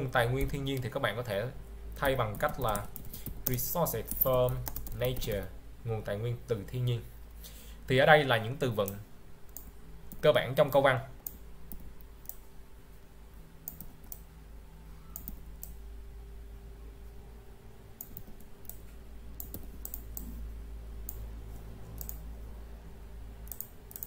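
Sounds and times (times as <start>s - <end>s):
low electrical hum: 0.0s - 24.0s
mouse and keyboard clicks: 15.1s - 15.8s, 18.0s - 20.4s, 22.0s - 22.2s.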